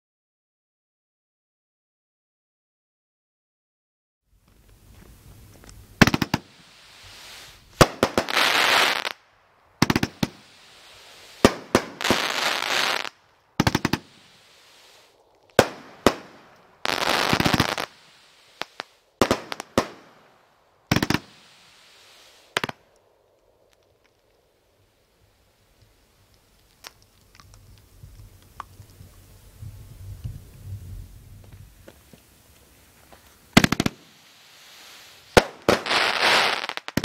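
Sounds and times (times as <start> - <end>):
firework crackling: 4.8 - 24.4, 25.6 - 37.0
firework bangs: 6.0 - 9.2, 9.8 - 22.8, 33.5 - 37.0.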